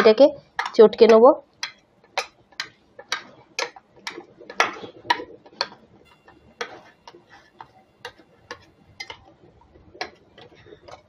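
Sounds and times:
spoon clinking on steel bowl: 6.1s - 9.3s.

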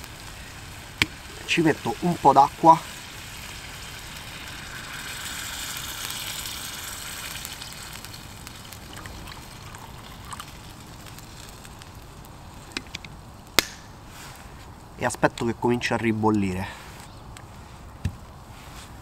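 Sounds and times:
sauce simmering: 0.0s - 12.7s
water hissing in hot pan: 0.0s - 12.7s.

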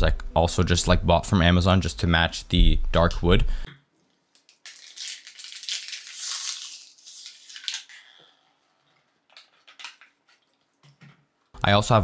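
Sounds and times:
plastic bottle crinkling: 4.3s - 11.2s.

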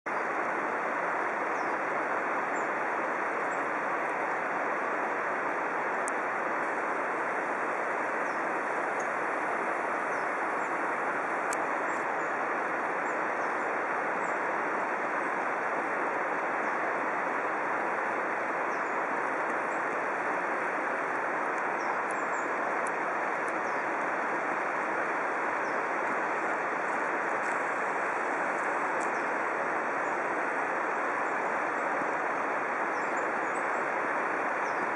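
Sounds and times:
waterfall roar: 0.1s - 34.9s.

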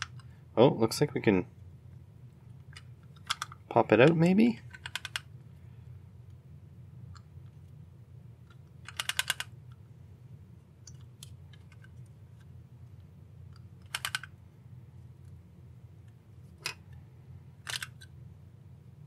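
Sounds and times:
plastic housing clicking: 17.6s - 18.1s.

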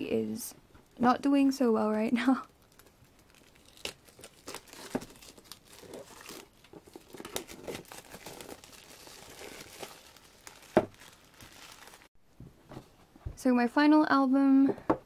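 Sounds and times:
plastic shrink wrap crinkling: 2.3s - 12.1s.

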